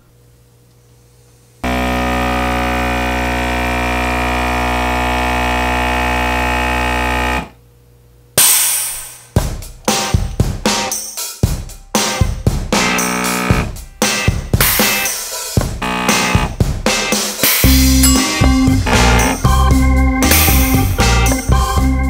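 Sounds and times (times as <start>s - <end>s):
air pump buzzing: 1.6s - 7.6s, 12.3s - 21.7s
loud noisy burst: 15.8s - 21.2s.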